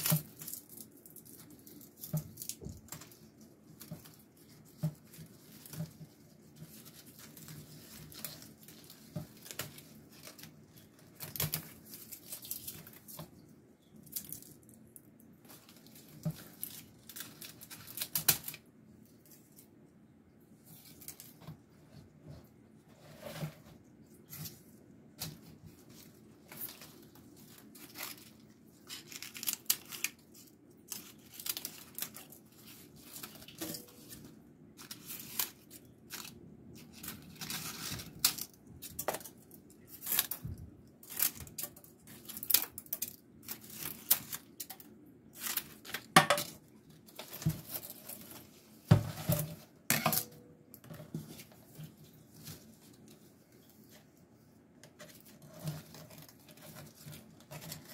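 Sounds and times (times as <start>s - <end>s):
dry leaves crackling and rustling: 25.9s - 39.0s.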